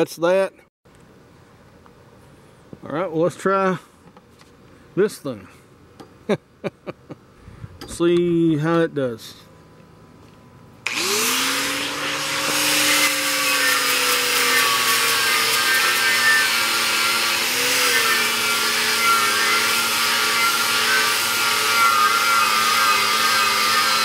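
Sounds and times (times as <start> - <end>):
angle grinder grinding paint: 10.8 - 24.0.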